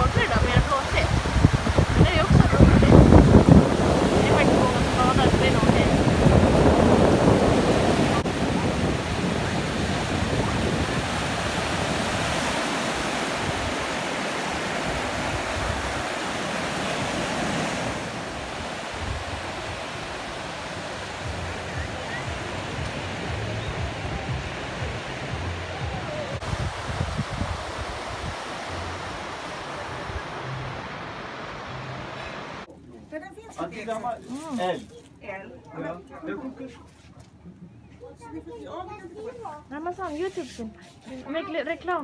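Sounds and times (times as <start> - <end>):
sea waves breaking on beach: 0.0 - 32.7
wind on microphone: 0.0 - 32.7.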